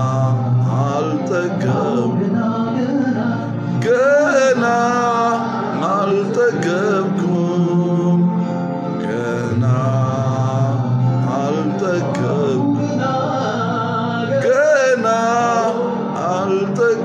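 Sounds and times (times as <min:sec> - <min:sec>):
held instrumental chords: 0:00.0 - 0:17.0
man singing: 0:00.0 - 0:17.0.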